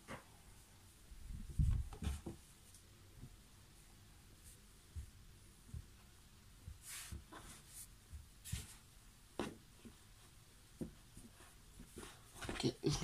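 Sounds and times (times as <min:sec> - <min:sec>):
t-shirt being folded: 0:03.7 - 0:13.0.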